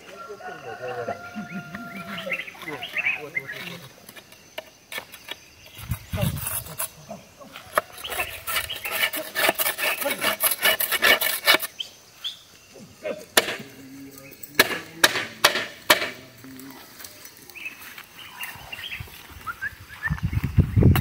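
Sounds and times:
metal plough clattering and scraping: 7.7s - 11.7s
sharp metal knocks: 14.5s - 16.2s.

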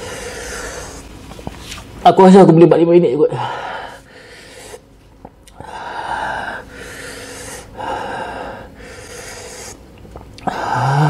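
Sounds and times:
man breathing hard through mouth: 5.5s - 9.8s.

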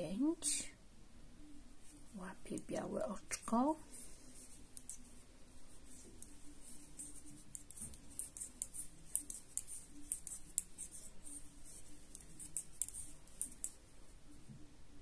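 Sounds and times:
knitting needles clicking: 4.7s - 5.2s, 7.0s - 13.8s.

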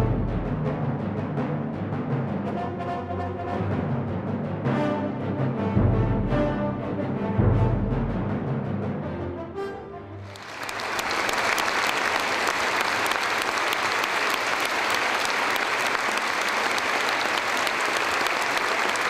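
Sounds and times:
symphony orchestra playing: 0.0s - 1.2s, 2.2s - 15.9s
audience applauding: 10.2s - 19.0s.

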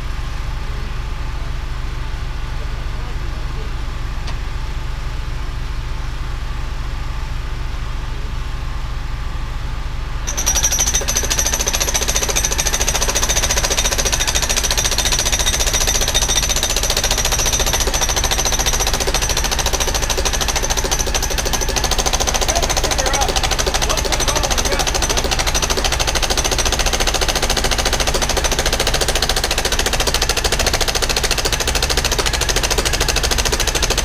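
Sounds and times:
excavator engine running: 10.2s - 34.0s
hydraulic breaker hammering: 10.3s - 34.0s.

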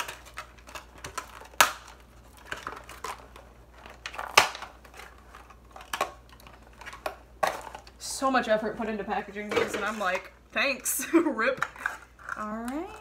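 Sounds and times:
plastic rustling: 0.0s - 8.0s.

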